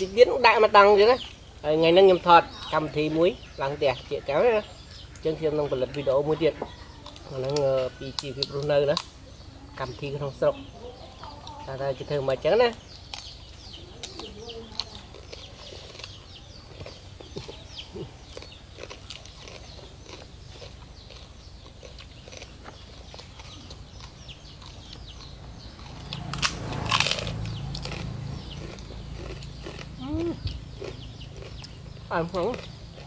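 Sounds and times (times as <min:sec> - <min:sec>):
chewing: 0:04.9 - 0:09.4, 0:13.0 - 0:33.0
crunching: 0:12.7 - 0:33.0.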